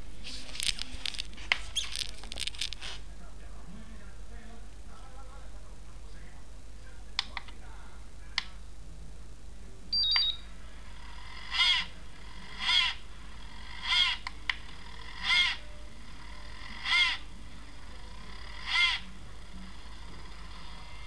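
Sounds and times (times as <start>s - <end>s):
small cooling fan whirring: 0.0s - 21.0s
short electronic beep: 9.9s - 10.5s
button clicks: 10.0s - 10.4s.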